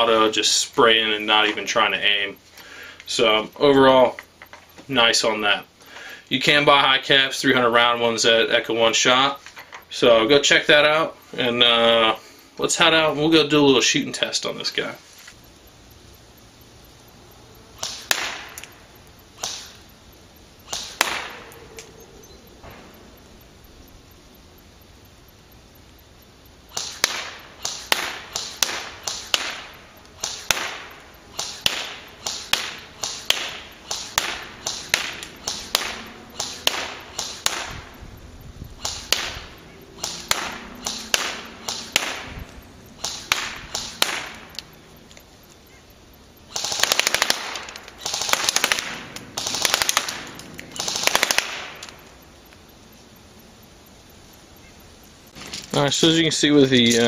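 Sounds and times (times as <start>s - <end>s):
airsoft rifle shots: 17.8s - 18.8s, 19.4s - 19.8s, 20.7s - 21.6s, 26.7s - 38.0s, 38.8s - 44.6s, 46.5s - 52.1s
airsoft rifle full-auto bursts: 26.7s - 37.9s, 38.8s - 42.4s, 43.0s - 44.4s, 46.5s - 52.0s.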